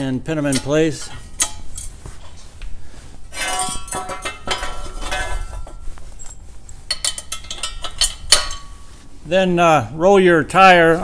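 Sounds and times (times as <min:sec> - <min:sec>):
steel brackets clanking on metal frame: 0:00.0 - 0:02.5, 0:03.3 - 0:08.9.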